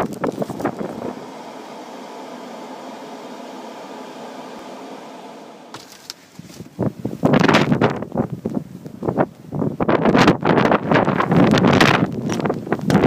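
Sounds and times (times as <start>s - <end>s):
blizzard wind rushing: 0.0s - 5.8s
wind gusts buffeting microphone: 6.5s - 13.0s.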